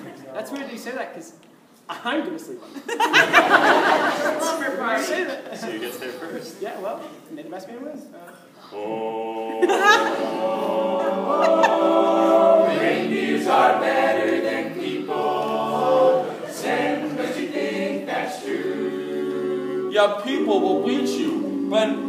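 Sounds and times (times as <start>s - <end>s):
male a cappella group singing: 8.7s - 22.0s.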